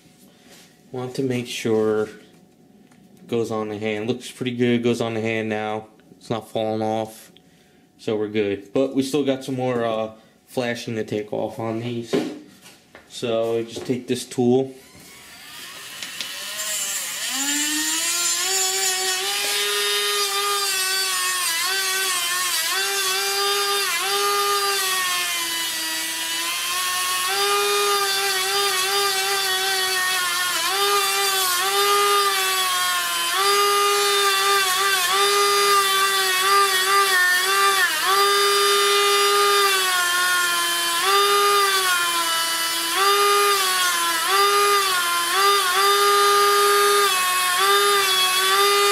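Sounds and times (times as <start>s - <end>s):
rotary tool high whine: 14.8s - 48.9s
bit grinding resin: 15.1s - 48.9s.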